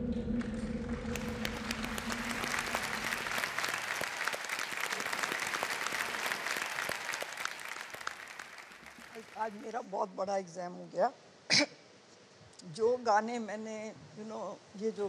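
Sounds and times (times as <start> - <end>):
low held musical note: 0.0 - 3.9
studio audience applauding: 1.0 - 9.8.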